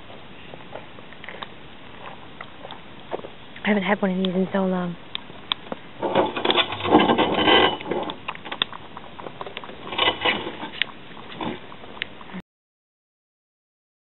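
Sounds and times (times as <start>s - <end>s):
campfire crackling and popping: 5.0s - 12.4s.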